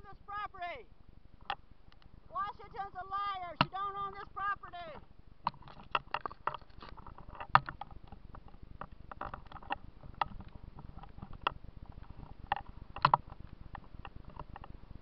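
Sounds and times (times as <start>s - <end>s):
camera handling clicks and knocks: 5.5s - 14.7s.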